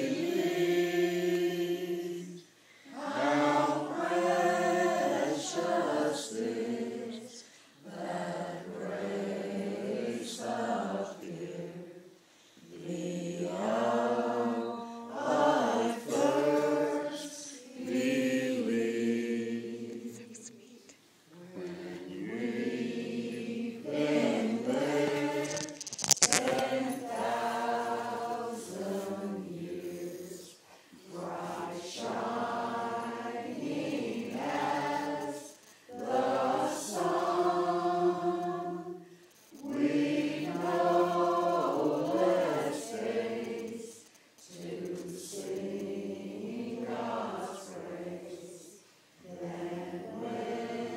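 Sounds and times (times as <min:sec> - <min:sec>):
choir singing: 0:00.0 - 0:20.5, 0:21.3 - 0:50.9
singers breathing: 0:02.5 - 0:03.0, 0:07.4 - 0:07.8.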